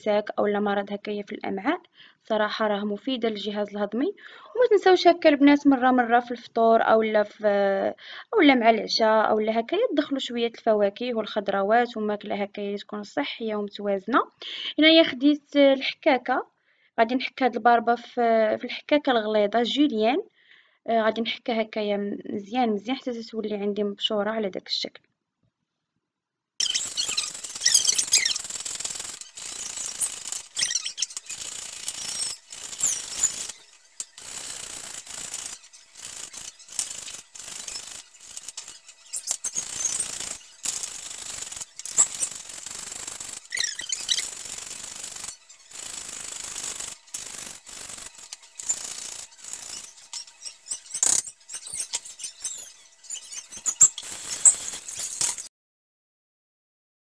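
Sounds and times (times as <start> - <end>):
beetroot scraping on a grater: 26.6 - 55.5.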